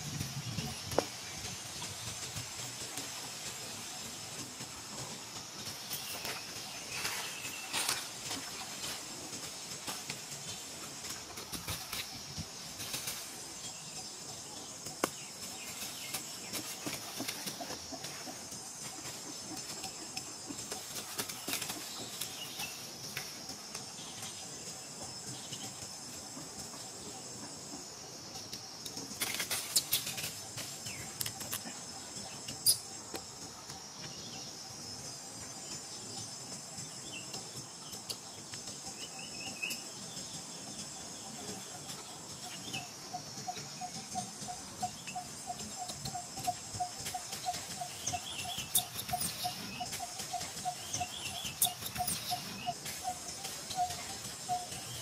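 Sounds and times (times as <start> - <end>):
rustle of dry leaves: 0.0 - 25.8, 26.5 - 35.9
insect chorus: 0.0 - 55.0
steady chirping pulse: 0.0 - 55.0.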